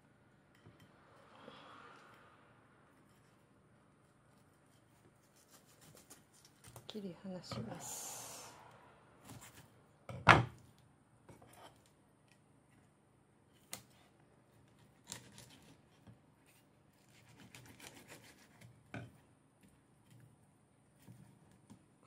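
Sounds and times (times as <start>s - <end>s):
knife scraping along fish bones: 4.3s - 6.8s, 14.8s - 18.9s.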